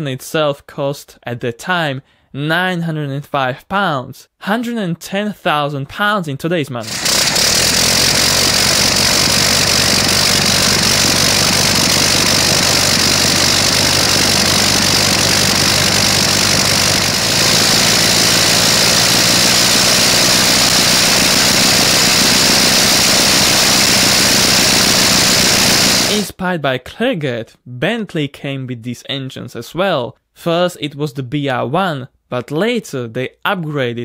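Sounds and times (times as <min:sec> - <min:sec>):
rotary aircraft engine running: 0:06.8 - 0:26.3.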